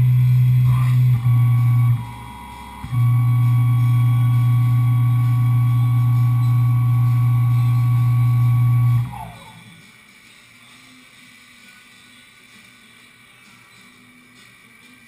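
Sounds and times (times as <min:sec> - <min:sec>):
milling machine humming: 0:00.0 - 0:09.8
spindle winding down whine: 0:00.0 - 0:09.9.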